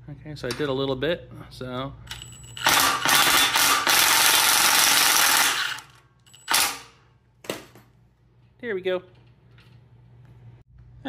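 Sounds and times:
impact driver driving screw into metal: 0:02.6 - 0:06.9.

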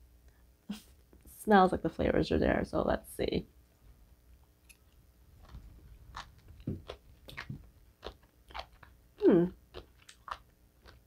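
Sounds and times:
crunchy chewing: 0:04.6 - 0:11.0.

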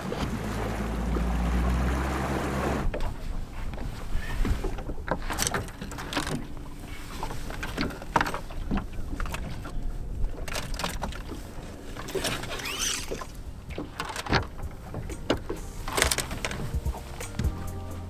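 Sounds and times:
rumble of wind and water: 0:00.0 - 0:18.0
knocks and clatter of gear: 0:02.9 - 0:11.4, 0:12.0 - 0:17.6
brief squeak: 0:12.4 - 0:13.2.

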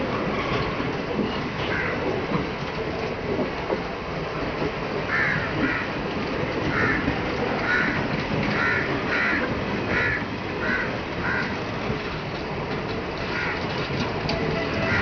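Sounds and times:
passenger coaches rolling past: 0:00.0 - 0:15.0
crow cawing: 0:05.1 - 0:05.9, 0:06.7 - 0:07.0, 0:07.6 - 0:08.0, 0:08.6 - 0:11.5, 0:13.3 - 0:13.6.

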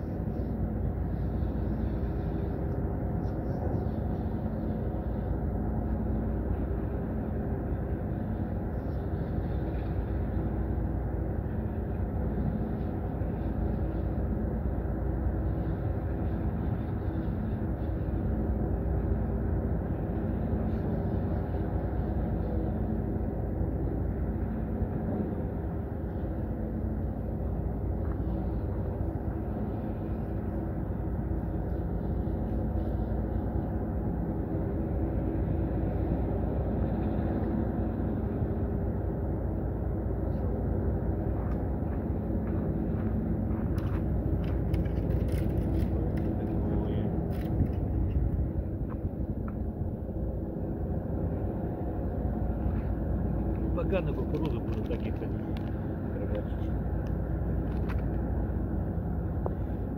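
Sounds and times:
ship engine humming: 0:00.0 - 0:59.9.

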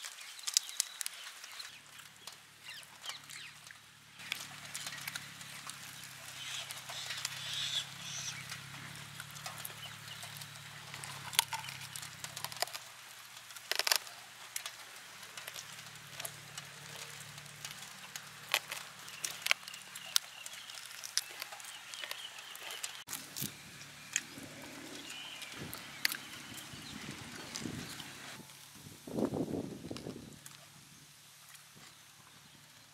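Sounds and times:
chewing and tearing meat: 0:00.0 - 0:28.4
faint bird calls: 0:01.6 - 0:12.6, 0:16.8 - 0:28.4.

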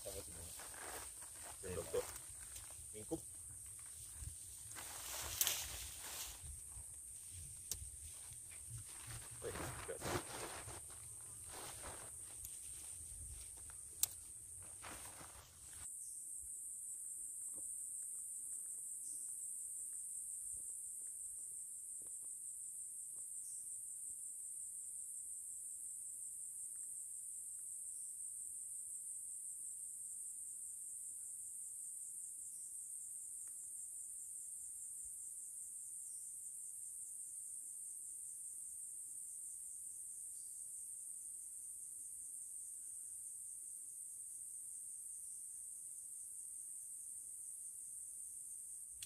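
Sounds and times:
shrill insect chorus: 0:00.0 - 0:49.0.

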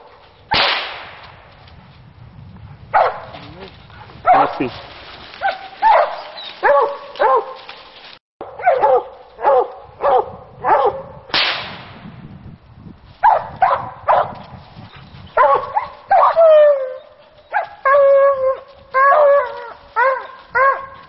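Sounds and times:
hounds barking: 0:02.9 - 0:04.8, 0:05.4 - 0:07.8, 0:08.4 - 0:11.2, 0:13.2 - 0:14.4, 0:15.4 - 0:21.0.

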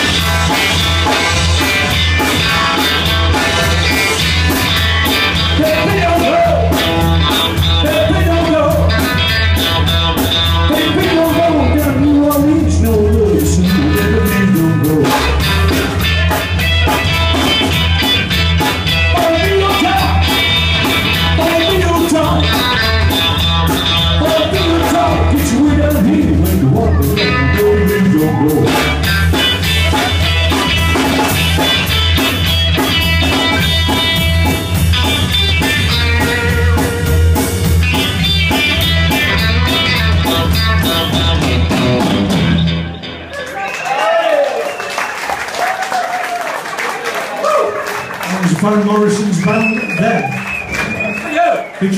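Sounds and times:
bass line: 0:00.0 - 0:43.4
electric guitar: 0:00.0 - 0:43.8
live blues-rock band: 0:00.0 - 0:44.0, 0:44.6 - 0:51.9
person singing: 0:10.6 - 0:15.6, 0:19.1 - 0:20.4, 0:24.0 - 0:29.0.

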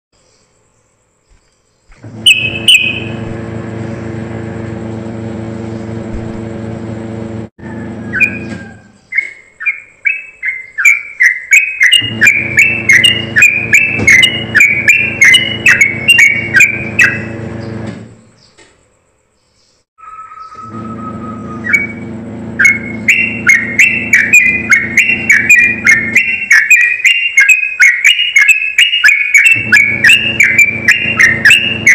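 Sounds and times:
low mechanical hum: 0:00.9 - 0:09.3, 0:12.0 - 0:18.8, 0:20.5 - 0:26.5, 0:29.6 - 0:31.9
bird calling and chirping: 0:01.3 - 0:04.0, 0:08.0 - 0:18.7, 0:19.4 - 0:22.0, 0:22.6 - 0:31.9.

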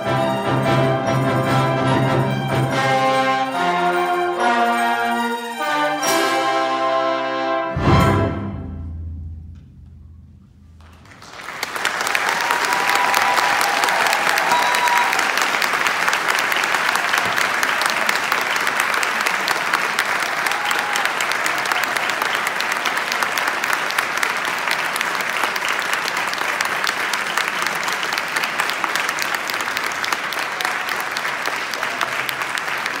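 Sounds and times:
audience applauding: 0:10.8 - 0:33.0.

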